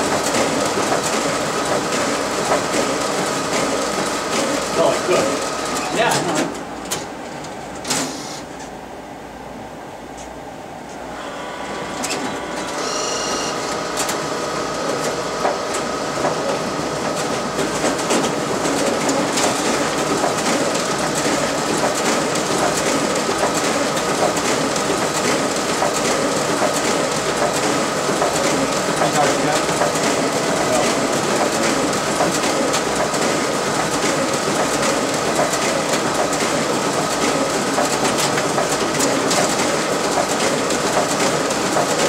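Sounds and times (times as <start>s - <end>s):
printer paper feed clatter: 0.0s - 8.4s, 11.2s - 42.0s
printer whine: 0.0s - 8.6s, 11.0s - 42.0s.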